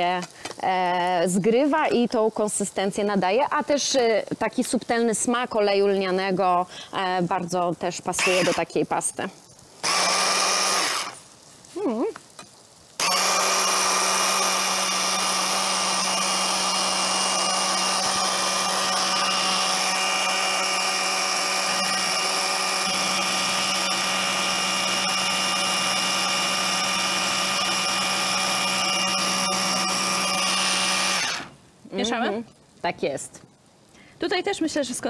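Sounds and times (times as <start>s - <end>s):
stick blender running: 8.2s - 8.7s, 9.8s - 11.2s, 13.0s - 31.6s.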